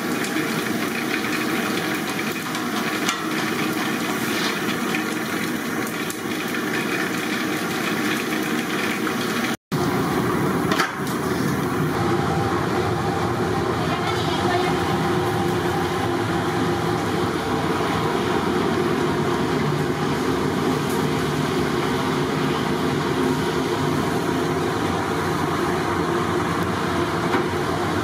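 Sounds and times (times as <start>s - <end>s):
food sizzling in hot oil: 0.0s - 12.2s.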